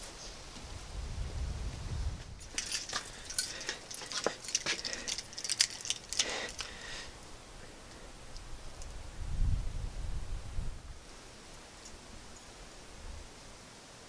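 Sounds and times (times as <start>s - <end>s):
keys jangling: 2.4s - 6.7s.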